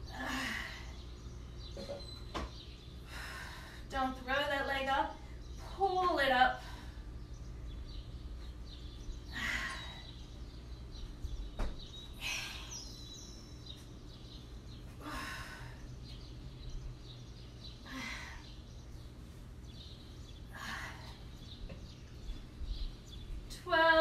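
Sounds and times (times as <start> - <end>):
steady low hum: 0.0 - 24.0
woman breathing out forcefully: 15.0 - 15.8.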